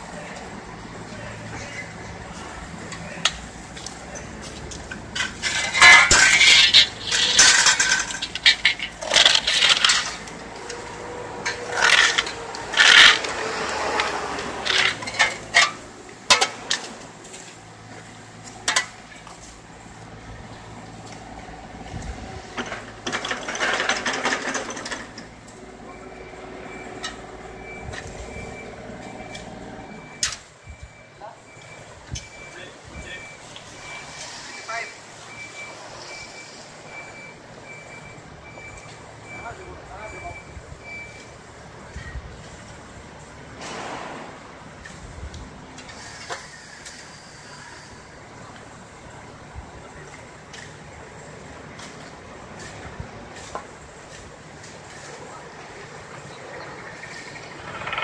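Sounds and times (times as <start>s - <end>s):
shovels scraping and clanking: 1.5s - 19.6s, 22.5s - 30.5s, 43.6s - 45.0s, 51.7s - 55.3s
low engine hum: 25.0s - 31.0s.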